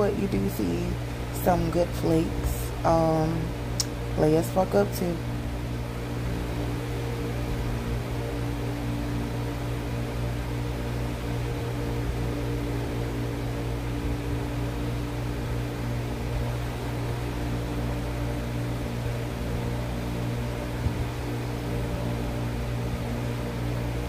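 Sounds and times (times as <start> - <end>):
low machine hum with tones: 0.0 - 24.0.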